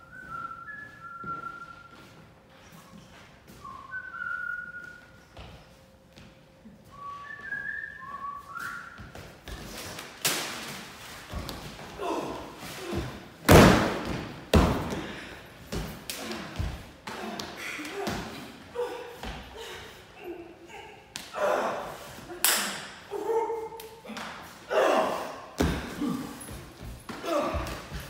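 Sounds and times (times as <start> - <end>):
person whistling a tune: 0.0 - 2.1, 3.6 - 5.3, 6.9 - 9.0.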